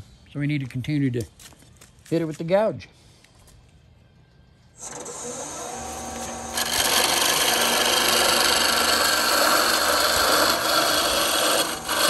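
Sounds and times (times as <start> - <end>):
gouge scraping spinning wood: 4.8 - 12.0
wood lathe running: 4.8 - 12.0.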